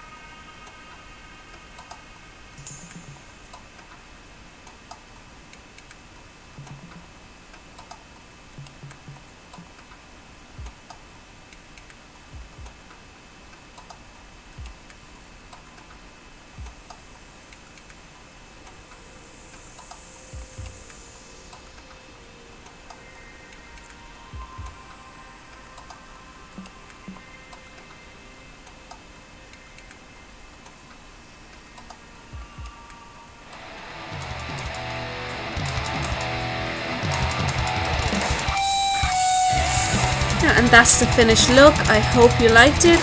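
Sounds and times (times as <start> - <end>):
low room hum: 0.0 - 38.6.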